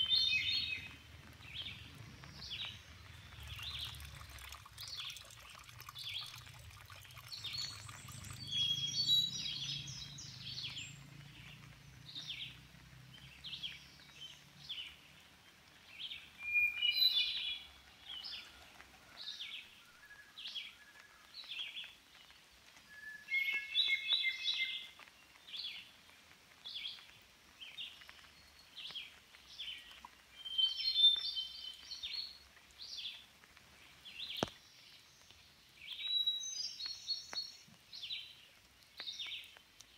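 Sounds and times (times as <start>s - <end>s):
bird singing fuller phrase: 0.0s - 5.1s, 7.2s - 15.0s.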